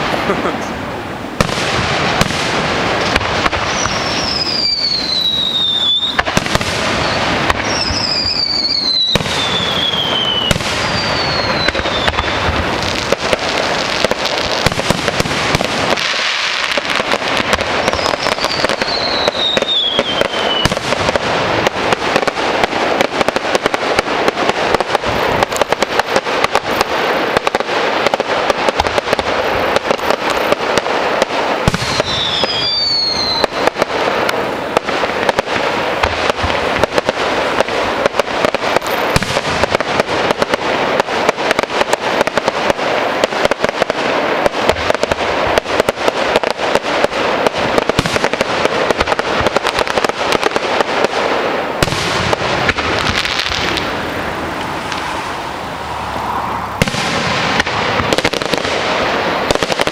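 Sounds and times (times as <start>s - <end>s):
fireworks crackling: 0.0s - 59.9s
falling firework whistles: 1.4s - 24.1s, 24.7s - 59.9s
firework bang: 1.4s - 59.9s.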